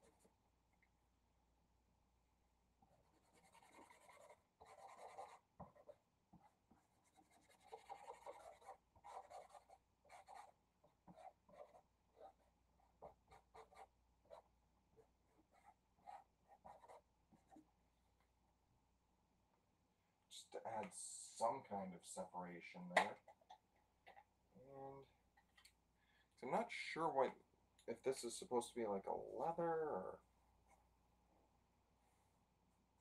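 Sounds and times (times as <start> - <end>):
marker scratching on paper: 2.9 - 12.4, 13.0 - 14.5, 15.3 - 17.6.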